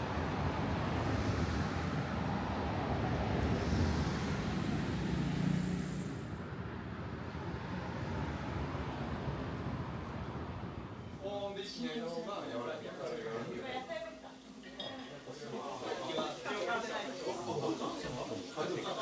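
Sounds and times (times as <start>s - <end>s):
road traffic rumble: 0.0s - 11.2s.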